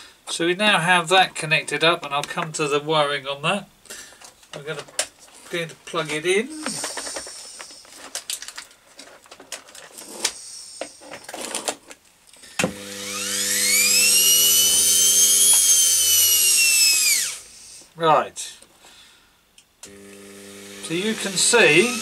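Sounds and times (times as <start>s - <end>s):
clicks and knocks of wires handled: 4.2s - 6.0s, 6.6s - 10.4s
motor whine starting up: 12.7s - 17.4s, 19.9s - 22.0s
steady motor hum: 19.9s - 22.0s.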